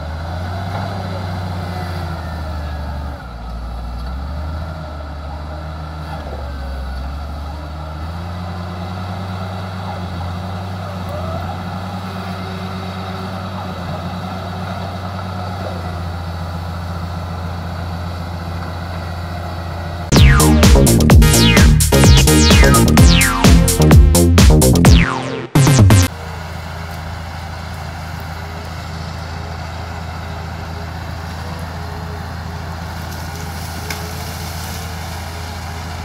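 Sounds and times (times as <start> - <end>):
bulldozer diesel engine running: 0.0 - 36.0.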